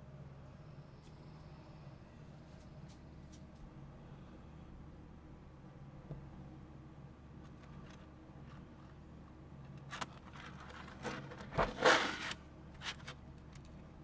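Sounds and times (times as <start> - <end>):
plastic case scraping clatter: 10.0 - 13.0.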